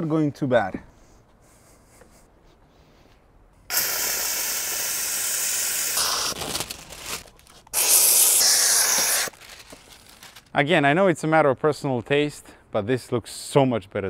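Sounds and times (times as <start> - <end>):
steam cleaner hissing: 3.7 - 6.4, 7.8 - 9.3.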